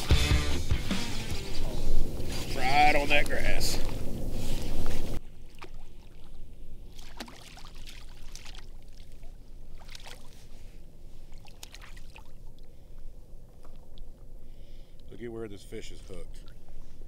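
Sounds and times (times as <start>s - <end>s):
low wash of water: 1.6s - 14.5s
fish splashing at water surface: 5.4s - 10.5s, 11.3s - 12.7s.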